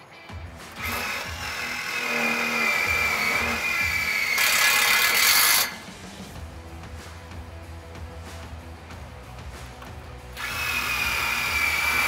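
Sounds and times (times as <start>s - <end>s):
cordless drill whining: 0.7s - 5.8s, 10.4s - 12.0s.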